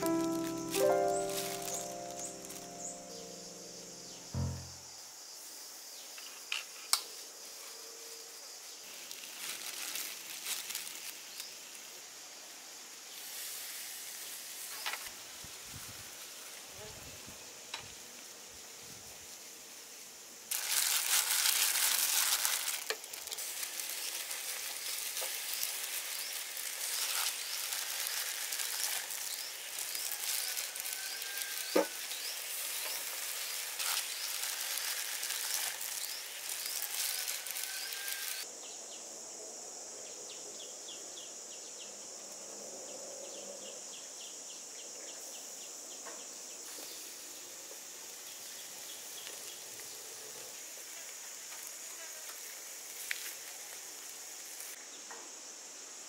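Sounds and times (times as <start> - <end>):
shrimp sizzling on grill: 0.0 - 4.7, 8.6 - 38.5, 46.7 - 54.8.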